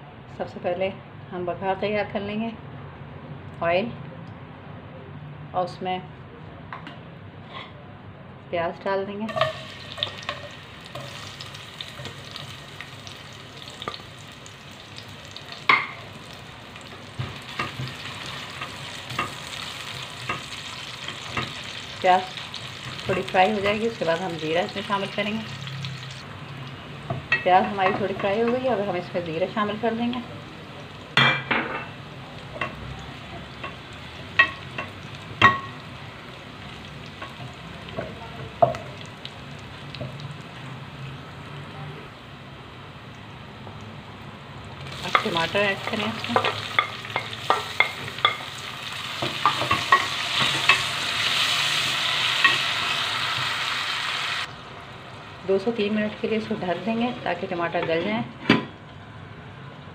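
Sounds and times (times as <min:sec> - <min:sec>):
onions sizzling in hot oil: 0:09.3 - 0:31.2, 0:32.0 - 0:57.8.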